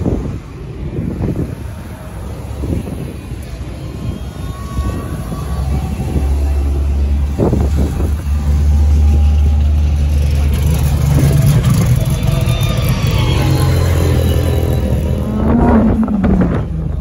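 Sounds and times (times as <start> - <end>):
car engine passing: 5.9 - 17.0.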